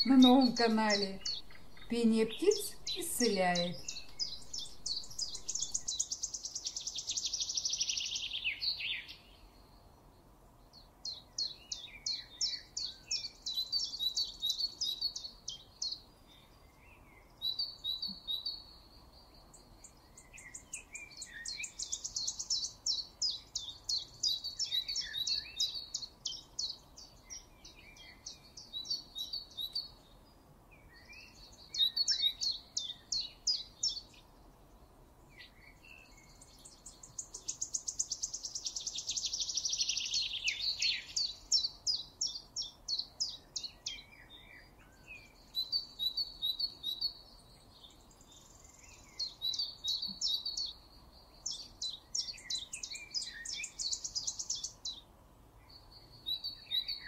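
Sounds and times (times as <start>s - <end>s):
bird trilling high phrases: 0.0s - 6.0s
soft low bird chirps: 0.0s - 9.0s.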